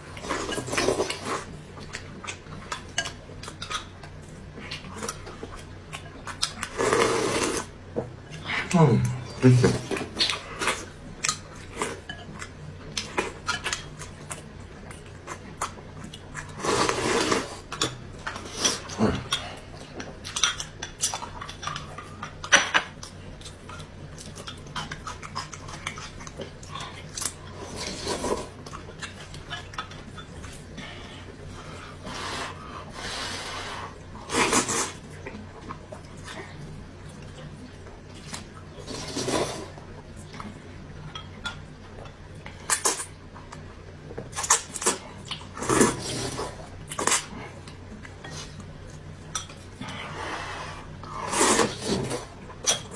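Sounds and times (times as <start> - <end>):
slurping noodles: 6.7 - 7.7, 16.5 - 17.7, 32.0 - 35.0, 38.8 - 39.8, 45.6 - 47.3, 49.9 - 52.4.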